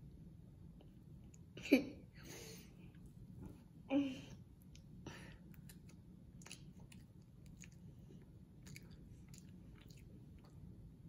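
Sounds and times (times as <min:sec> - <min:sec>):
child chewing: 0:04.6 - 0:10.9.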